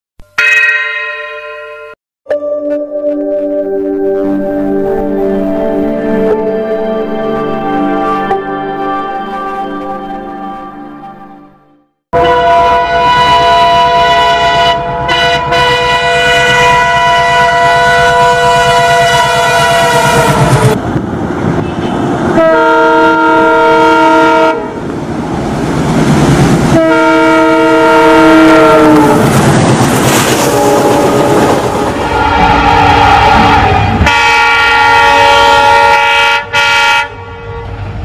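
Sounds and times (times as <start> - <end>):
train air horn blasts: 12.2 - 20.8, 21.6 - 24.8, 26.7 - 29.3, 30.3 - 38.0
train rumble and clickety-clack: 13.0 - 34.3.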